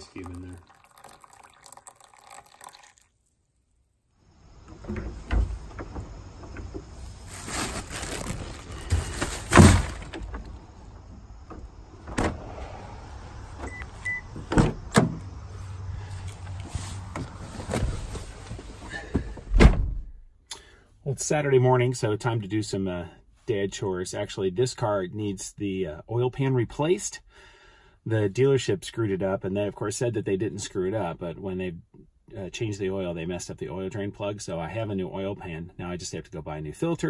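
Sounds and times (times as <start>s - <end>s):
objects knocking and clunking: 4.6s - 7.1s, 8.5s - 12.3s
loud thump: 8.9s - 10.2s, 19.5s - 20.1s.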